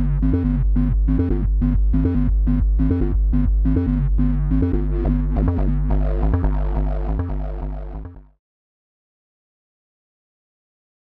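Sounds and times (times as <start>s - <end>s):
electronic music: 0.0s - 8.4s.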